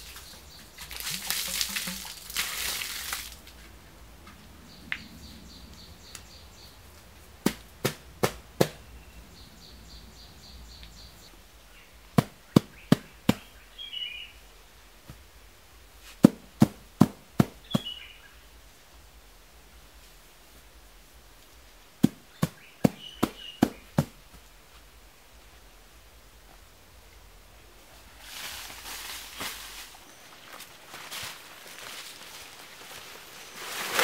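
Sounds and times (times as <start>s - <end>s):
bird chirping: 4.6s - 7.0s, 8.7s - 14.6s, 17.6s - 18.5s, 22.3s - 24.1s
sharp knocks by hand: 7.4s - 8.8s.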